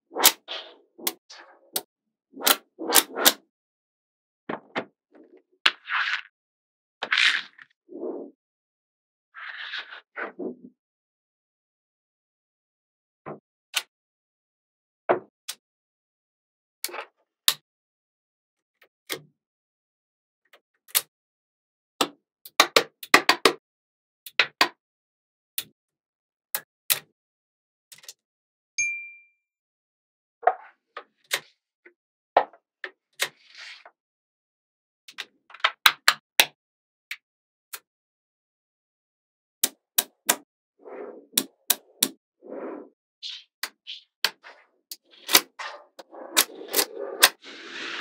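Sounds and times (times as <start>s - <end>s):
short scrape: 45.4s - 48.0s.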